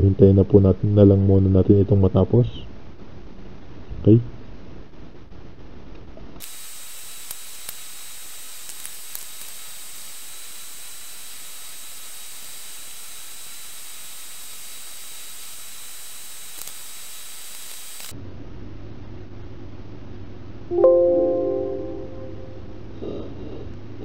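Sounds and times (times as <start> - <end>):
electronic hiss: 6.4 - 18.2.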